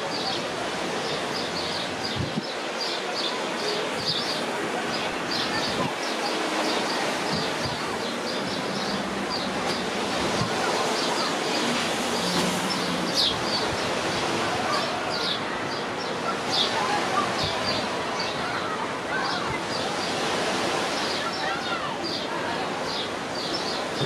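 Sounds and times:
sea and wind hiss: 0.0 - 24.0.

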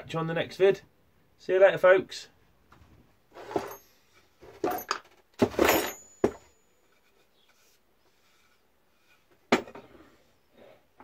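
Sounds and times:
wood and metal pieces clattering: 3.4 - 6.6
faint handling sounds: 5.7 - 10.5.

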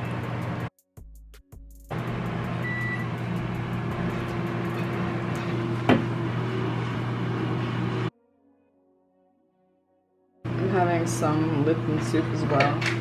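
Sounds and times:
low mechanical hum: 1.9 - 8.1.

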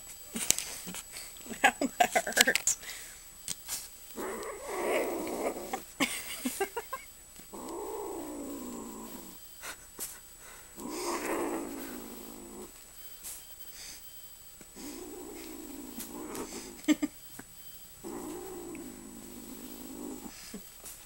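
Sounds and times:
kitten growling: 4.2 - 5.9, 7.5 - 9.4, 10.7 - 12.8, 14.8 - 17.1, 18.0 - 20.6.

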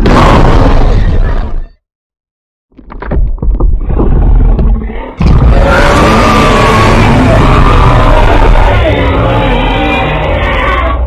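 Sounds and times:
loud sustained creature roar: 5.2 - 11.0.

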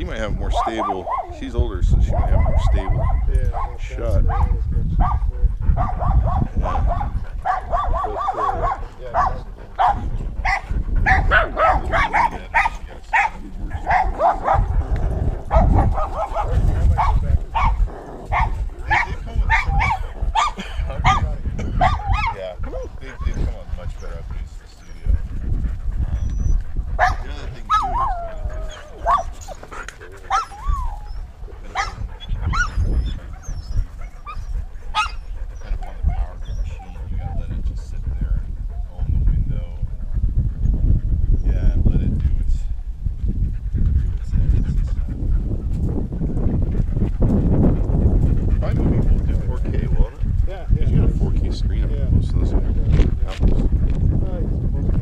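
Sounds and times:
camera rubbing against fur: 0.0 - 55.0
dog barking and yipping: 0.4 - 1.4, 2.0 - 22.5, 26.2 - 37.4
low rumble: 8.7 - 55.0.

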